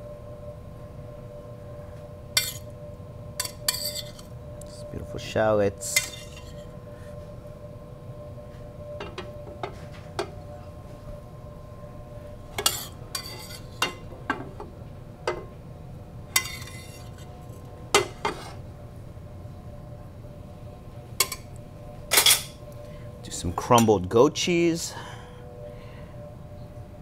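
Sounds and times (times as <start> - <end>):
low background hum: 0.0 - 27.0
metal spoon scraping a skillet: 2.4 - 2.7, 3.4 - 4.3, 5.8 - 6.7, 12.6 - 14.0, 16.3 - 18.6.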